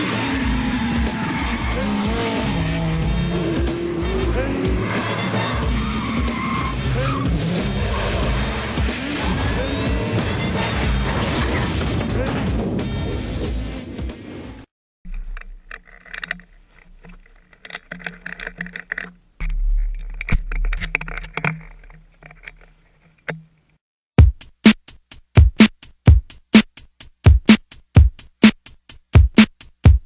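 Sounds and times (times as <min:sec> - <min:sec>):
drum-machine beat: 0:24.2 - 0:30.0.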